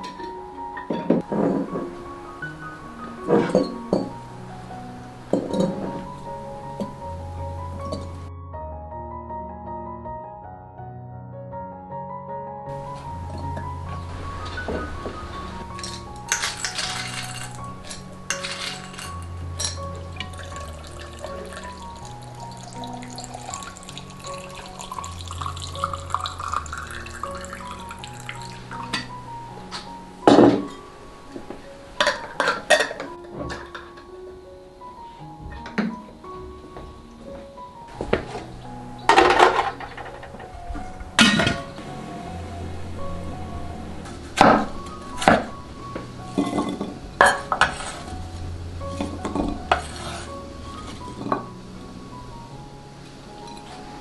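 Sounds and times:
soft background music: 0:00.0 - 0:54.0
water pouring into a jar: 0:20.2 - 0:29.1.

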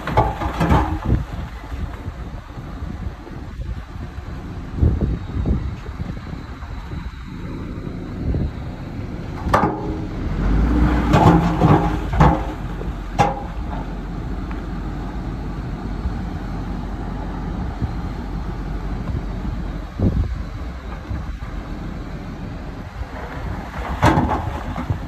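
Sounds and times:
rocks clanking on steel: 0:00.0 - 0:02.4, 0:09.3 - 0:14.7, 0:23.0 - 0:25.0
rocks and dirt sliding: 0:00.0 - 0:07.0, 0:09.3 - 0:14.9, 0:19.0 - 0:25.0
truck engine rumble: 0:00.0 - 0:25.0.

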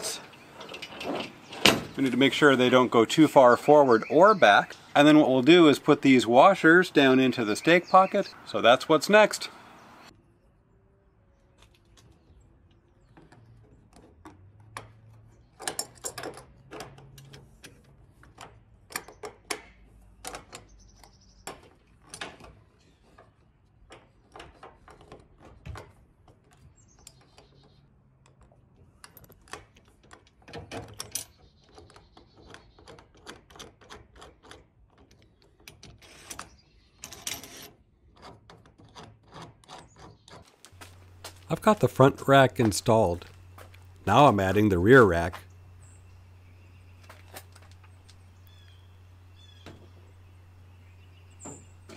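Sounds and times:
metal parts clicking and clinking: 0:00.2 - 0:02.0.

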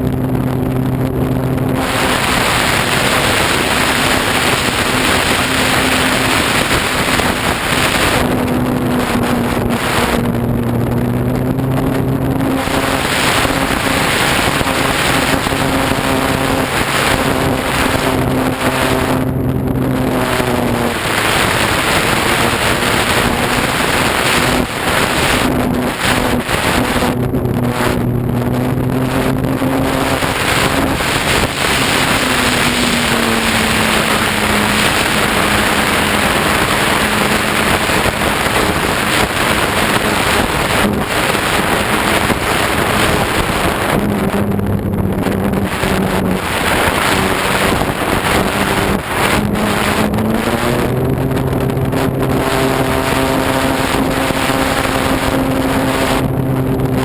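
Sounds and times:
electric motor and propeller humming: 0:00.0 - 0:57.0
wind rushing over microphone: 0:00.0 - 0:57.0.

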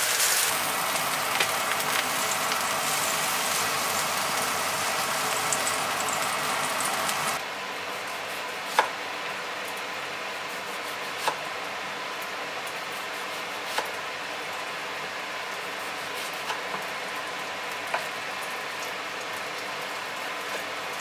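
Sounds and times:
skewers sizzling on a grill: 0:00.0 - 0:07.4.

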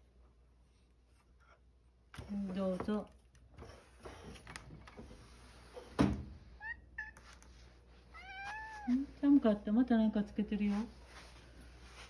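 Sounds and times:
cat meowing: 0:08.1 - 0:09.0.

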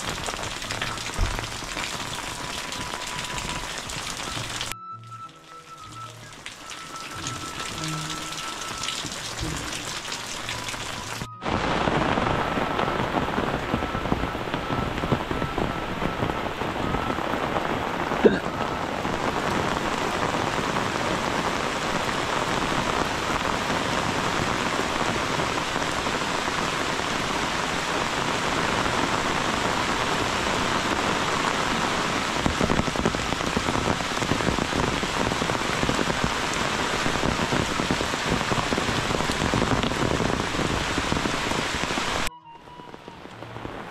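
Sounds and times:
heavy downpour hissing: 0:00.0 - 0:43.9
rain dripping off roof tiles: 0:00.0 - 0:43.9.

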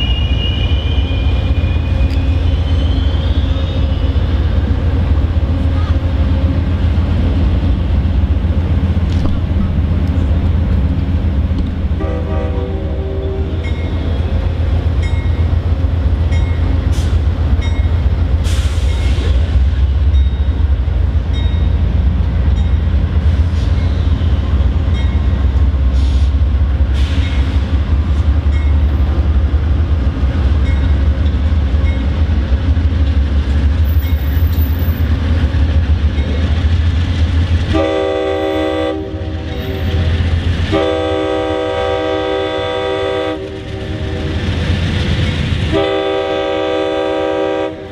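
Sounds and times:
diesel locomotive rumbling: 0:00.0 - 0:47.9
train horn blasts: 0:12.0 - 0:14.3, 0:37.7 - 0:40.0, 0:40.7 - 0:44.4, 0:45.7 - 0:47.9.

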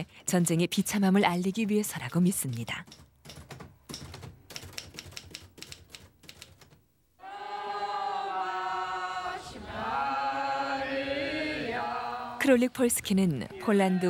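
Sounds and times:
sharp typewriter-like clicks: 0:01.9 - 0:06.8
women singing together: 0:07.2 - 0:14.0.

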